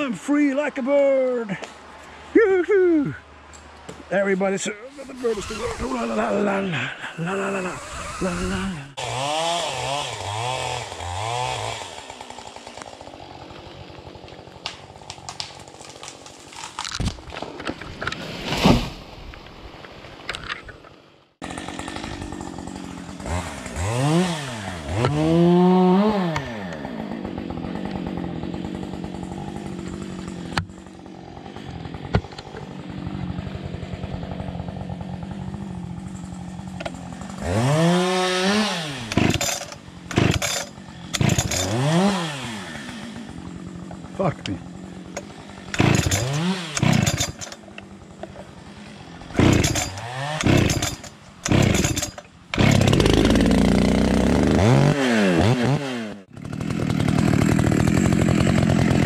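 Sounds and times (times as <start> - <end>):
chainsaw idling and revving: 5.2 - 16.7, 21.4 - 59.0.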